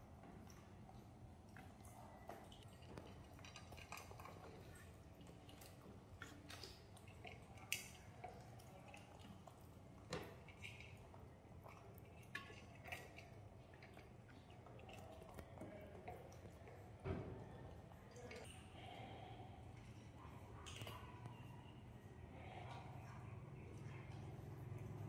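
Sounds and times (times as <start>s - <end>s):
monkeys chewing: 0.5s - 17.0s.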